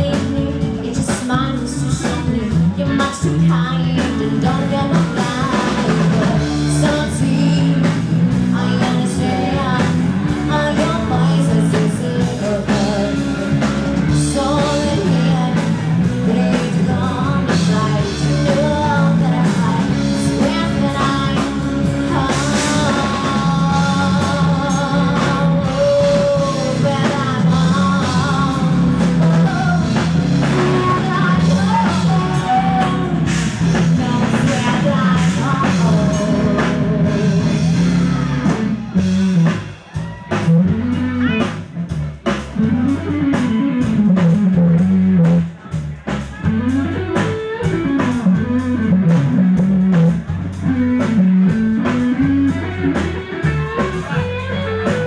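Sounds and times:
woman singing: 0.0s - 38.6s
bass guitar: 0.0s - 55.0s
drum kit: 0.0s - 55.0s
electric guitar: 0.0s - 55.0s.

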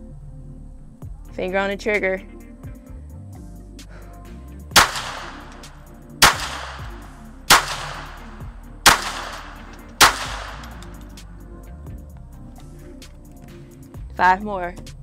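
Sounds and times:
pistol shots with echo: 4.8s - 11.0s.

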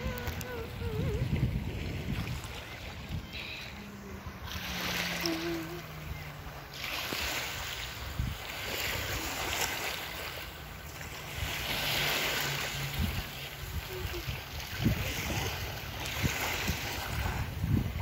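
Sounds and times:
small waves lapping on shore: 0.0s - 18.0s
wind rumbling on microphone: 0.0s - 18.0s.

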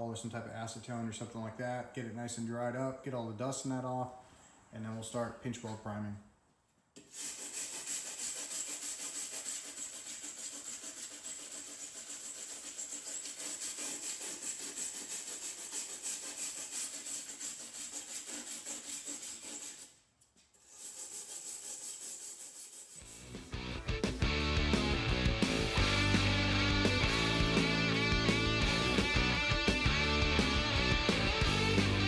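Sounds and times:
abrasive scrubbing rusty metal: 7.1s - 19.9s, 20.6s - 23.6s.

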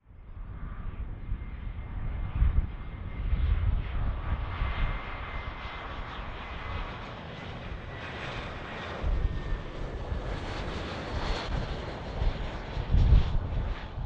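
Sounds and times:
airliner engines roaring: 0.0s - 14.0s.

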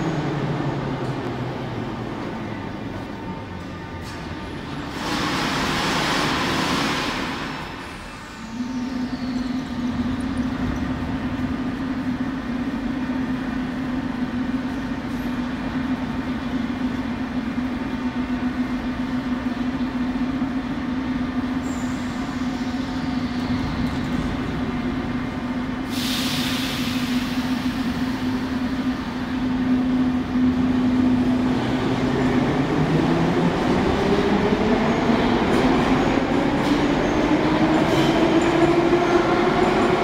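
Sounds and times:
low hum of standing train: 0.0s - 40.0s
train air hiss: 21.6s - 23.2s, 25.7s - 29.4s.

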